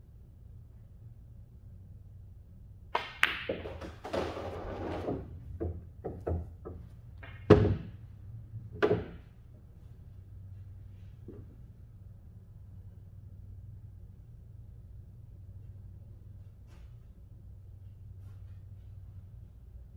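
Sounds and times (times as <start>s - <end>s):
billiard balls clacking: 3.0s - 8.0s, 8.8s - 9.3s
pool cue striking ball: 3.0s - 8.0s, 8.8s - 9.2s.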